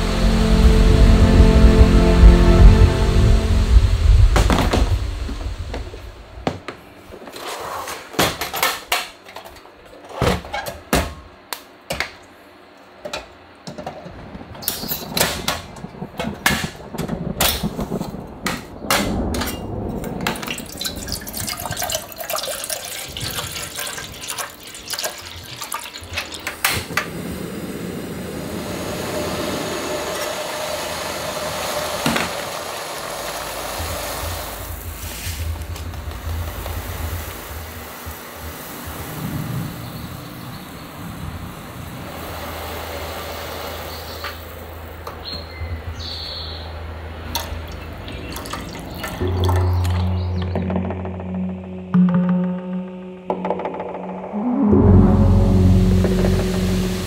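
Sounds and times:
gas burner hissing: 26.3 - 45.2.

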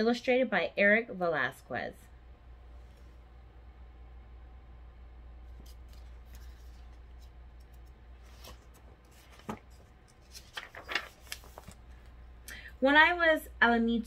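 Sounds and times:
faint low hum: 0.0 - 14.0
paper pages rustling: 5.5 - 12.2.

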